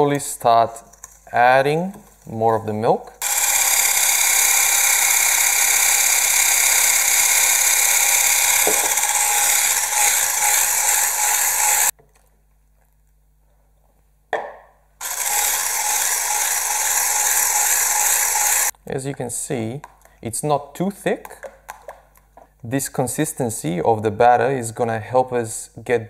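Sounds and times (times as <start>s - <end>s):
electric hand mixer running: 3.2s - 11.9s, 15.0s - 18.7s.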